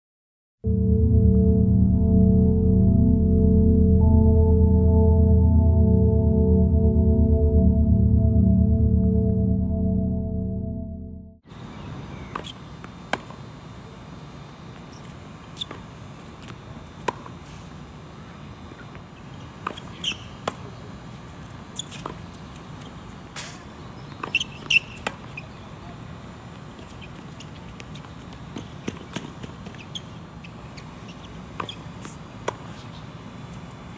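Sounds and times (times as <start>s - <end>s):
shoe squeaks on court: 19.7s - 20.4s, 21.8s - 22.2s, 24.2s - 25.5s, 29.6s - 33.0s.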